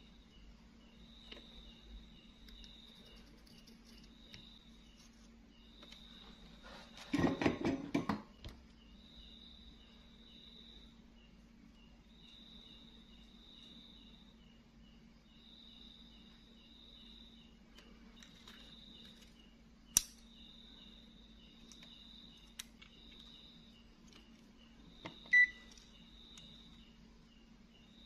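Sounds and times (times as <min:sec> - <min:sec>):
insect-like chirping trills: 0:00.0 - 0:06.4, 0:08.7 - 0:28.0
low steady hum: 0:00.0 - 0:28.0
sharp click: 0:19.9 - 0:20.2.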